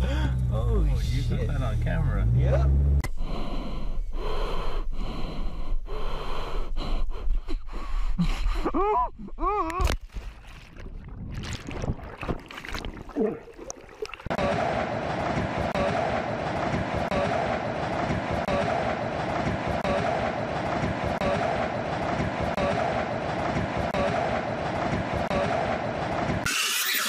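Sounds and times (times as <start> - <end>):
person breathing sharply: 3.1 - 8.5.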